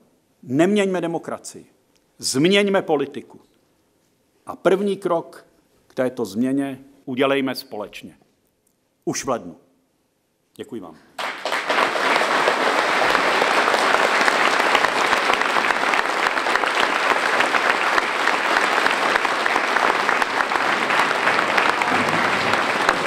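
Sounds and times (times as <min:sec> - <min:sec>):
audience applauding: 0:11.2 - 0:23.0.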